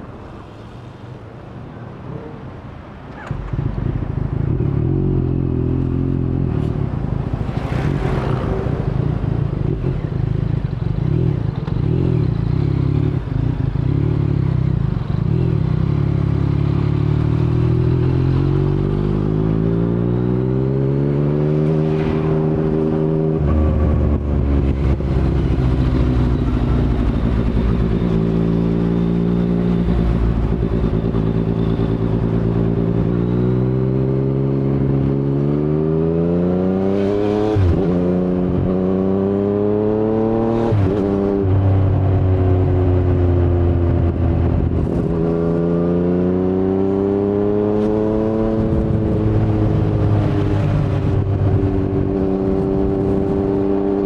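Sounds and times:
motorcycle engine accelerating: 3.2s - 54.0s.

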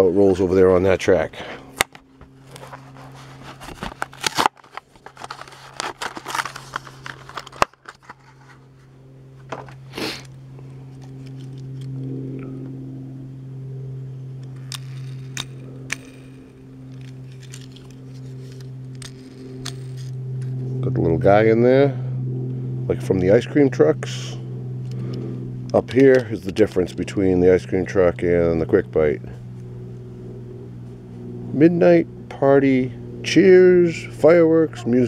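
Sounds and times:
steady low hum: 0.0s - 35.0s
plastic and cardboard tearing: 2.4s - 8.6s
light handling clicks: 24.8s - 26.7s.

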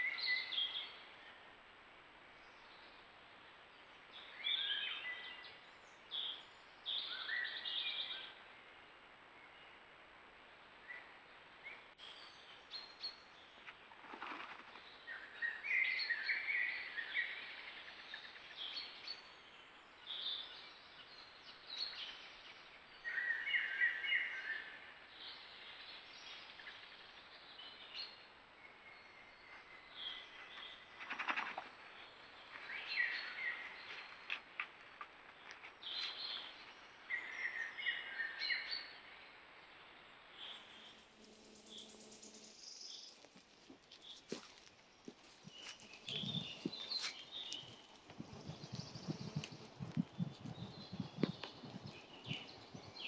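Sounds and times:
songbirds singing: 0.0s - 1.5s, 2.3s - 9.8s, 10.8s - 53.0s
wolf scraping earth: 42.8s - 49.6s.

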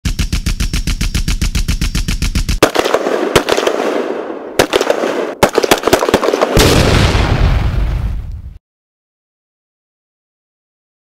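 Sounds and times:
rapid gunfire: 0.0s - 6.8s.

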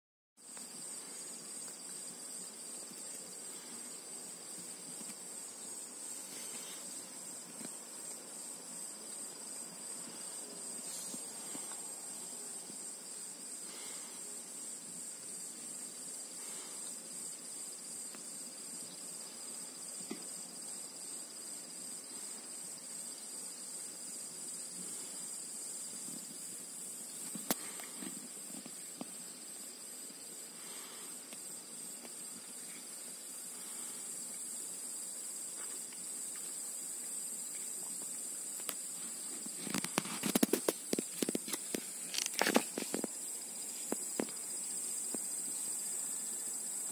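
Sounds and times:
crackling rustles and clicks: 38.6s - 43.2s.

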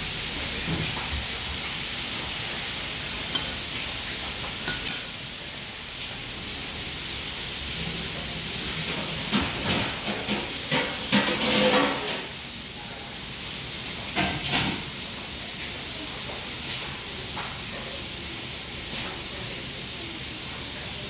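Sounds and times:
metal spoon clinking on plate: 3.3s - 3.6s, 4.6s - 5.2s.

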